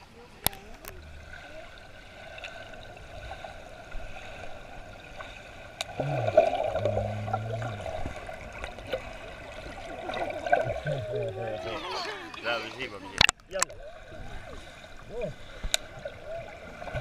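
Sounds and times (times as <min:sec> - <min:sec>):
water splashing and bubbling: 0:00.0 - 0:17.0
muffled underwater hiss: 0:00.2 - 0:11.6.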